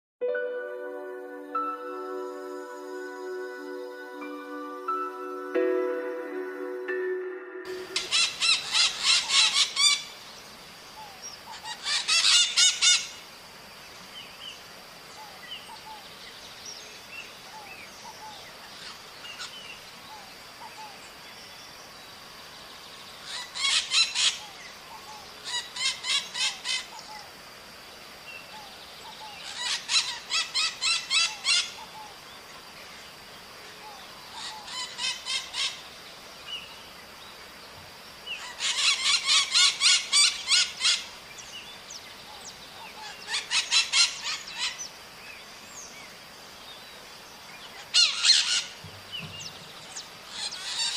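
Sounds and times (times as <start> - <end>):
faint high tone: 0.2 - 8.8
parakeets screeching: 8.0 - 10.0, 38.4 - 41.0, 50.3 - 50.9.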